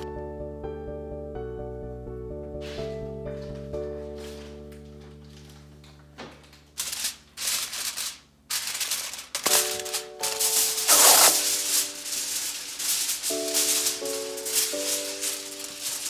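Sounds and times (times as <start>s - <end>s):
soft background music: 0.0s - 6.8s, 9.4s - 16.0s
aluminium foil crinkling: 4.1s - 16.0s.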